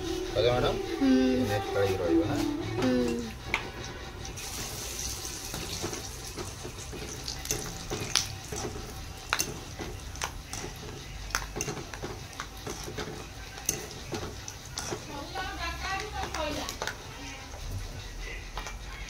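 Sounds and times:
peanuts frying in hot oil: 0:04.2 - 0:19.0.

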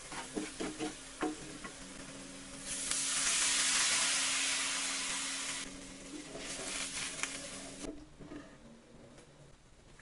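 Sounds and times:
oil sizzling in frying pan: 0:00.0 - 0:07.9.

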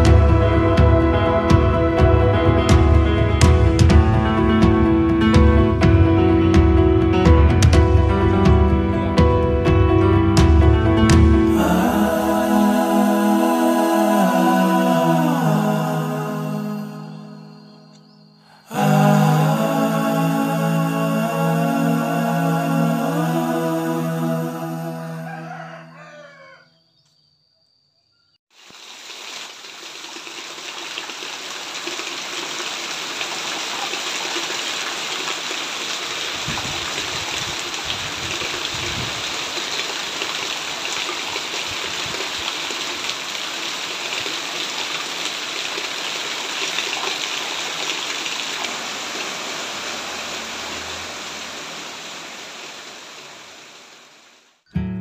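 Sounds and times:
background music: 0:00.0 - 0:17.9, 0:18.7 - 0:25.9
heavy rain on foliage: 0:28.5 - 0:54.6.

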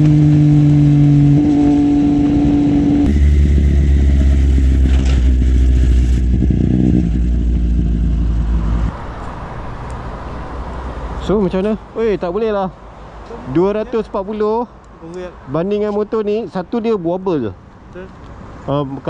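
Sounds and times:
motorcycle engine revving: 0:00.0 - 0:08.9.

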